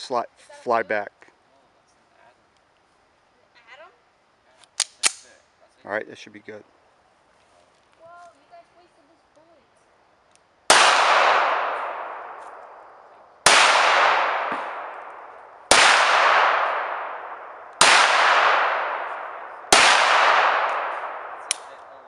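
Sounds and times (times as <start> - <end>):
pistol shots echoing: 10.7 - 12.7, 13.4 - 21.8.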